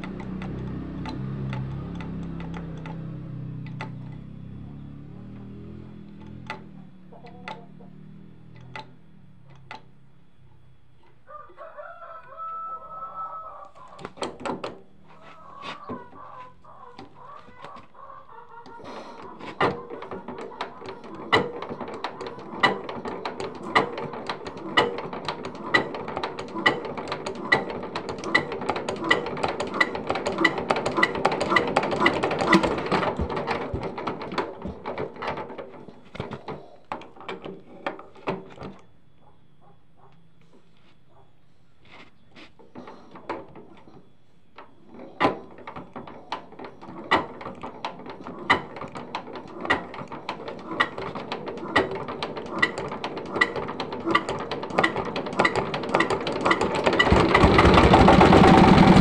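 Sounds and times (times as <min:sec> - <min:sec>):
diesel engine clattering: 0:00.0 - 0:11.0, 0:19.1 - 0:38.8, 0:42.6 - 0:59.0
rooster crowing: 0:11.2 - 0:14.2, 0:15.1 - 0:19.5.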